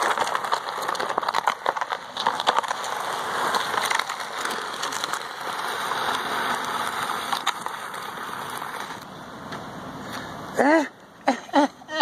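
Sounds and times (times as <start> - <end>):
plastic trash can scraping asphalt: 0.0 - 10.3.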